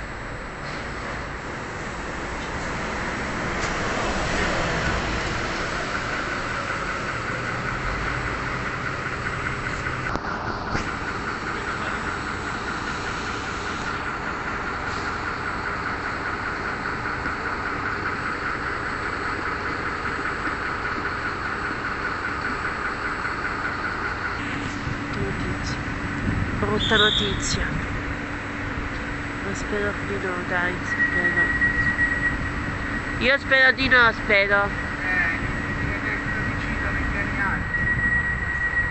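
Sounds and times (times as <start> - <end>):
vehicle running noise: 0.0 - 38.9
high squealing tone: 30.6 - 38.9.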